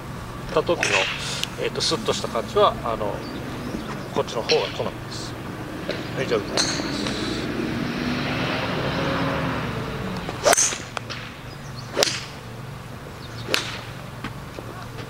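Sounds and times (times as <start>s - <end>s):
golf club striking ball: 0.5s - 2.2s, 3.2s - 5.2s, 5.8s - 7.4s, 10.1s - 12.6s, 13.2s - 14.4s.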